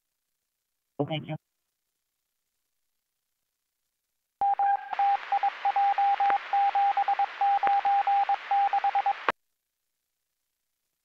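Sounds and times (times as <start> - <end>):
morse code tone: 4.4 - 9.3
radio hiss: 4.8 - 9.3.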